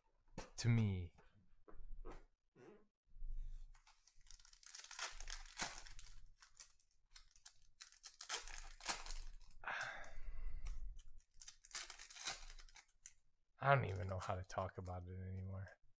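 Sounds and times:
card wrappers tearing and crinkling: 3.8 - 9.6, 11.2 - 13.1.

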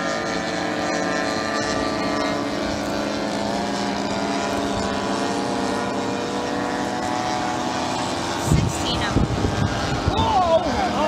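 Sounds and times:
model plane engines droning: 0.0 - 11.0.

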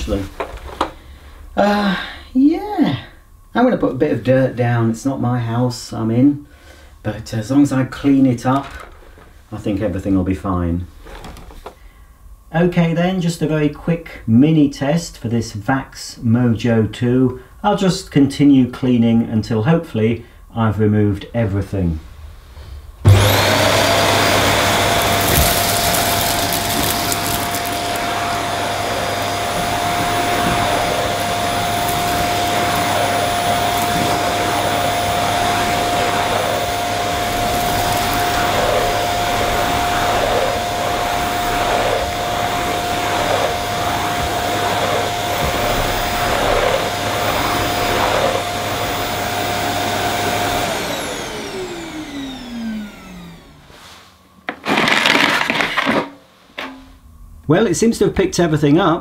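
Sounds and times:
vacuum cleaner motor whine: 23.0 - 56.7
grit rattling up vacuum nozzle: 23.3 - 49.7.

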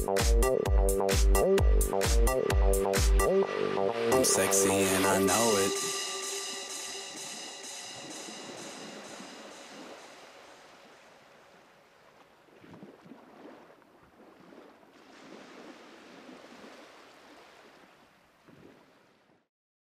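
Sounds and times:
faint surf: 3.5 - 19.3.

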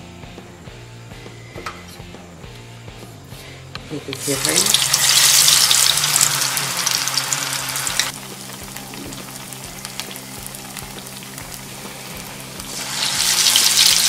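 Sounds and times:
bread sizzling in hot oil: 4.2 - 14.0.

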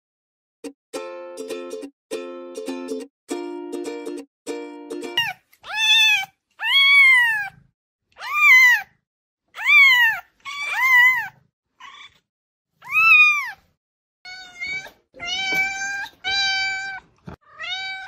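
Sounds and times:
cat meowing: 5.2 - 7.6, 8.2 - 9.0, 9.6 - 12.2, 12.8 - 13.7, 14.3 - 18.0.

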